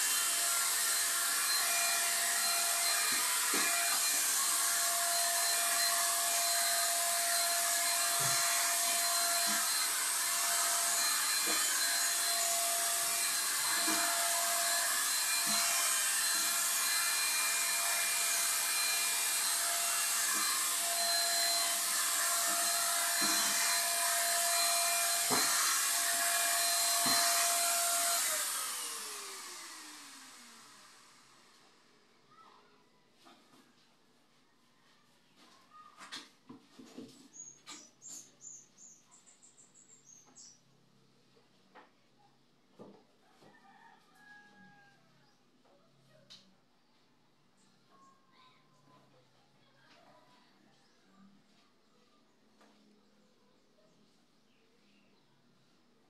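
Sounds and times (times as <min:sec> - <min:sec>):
electric paint spray gun running: 0:00.0 - 0:32.0.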